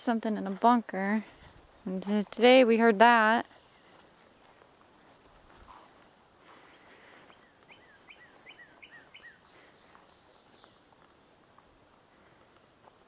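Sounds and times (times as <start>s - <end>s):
faint songbird whistled notes: 7.4s - 10.8s.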